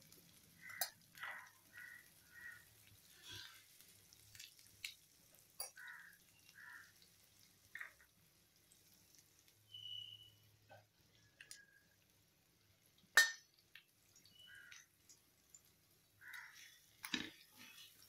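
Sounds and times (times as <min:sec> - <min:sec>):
soft ticks: 0:11.4 - 0:11.8.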